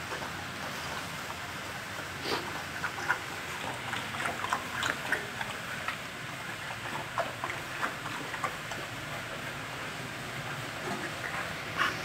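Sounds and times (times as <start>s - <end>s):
dogs eating from metal bowl: 0.0s - 12.0s.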